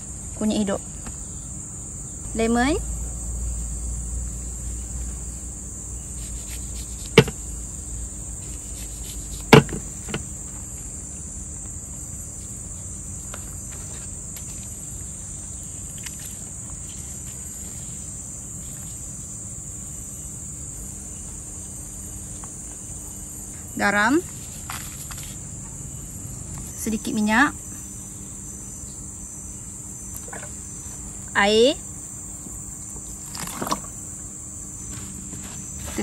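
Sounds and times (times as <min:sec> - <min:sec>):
insects droning: 0:00.0 - 0:36.0
sharp knocks: 0:07.1 - 0:07.4.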